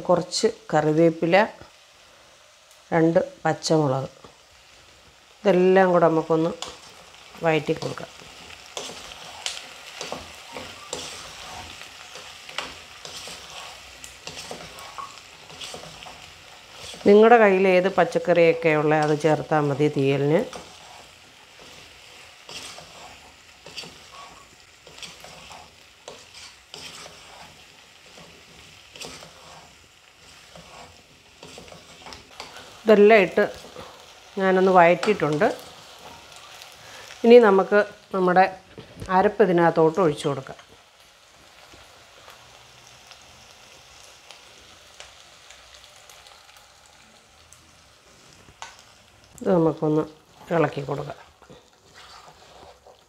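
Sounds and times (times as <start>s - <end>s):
vegetables sizzling in oil: 0.0s - 53.0s
wooden spatula scraping a pot: 6.5s - 17.4s, 18.6s - 34.1s, 50.3s - 53.0s.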